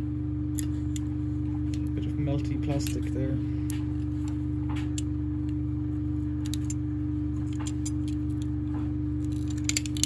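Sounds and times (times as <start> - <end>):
plastic parts clicking and scraping: 9.2 - 10.0.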